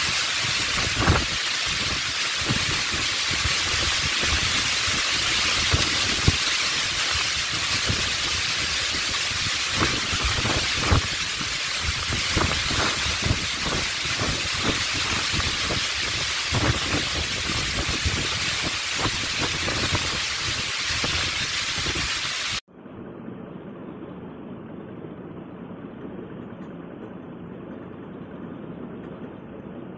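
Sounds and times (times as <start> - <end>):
wind buffeting microphone: 0.0 - 22.2
heavy rain pouring: 0.0 - 22.6.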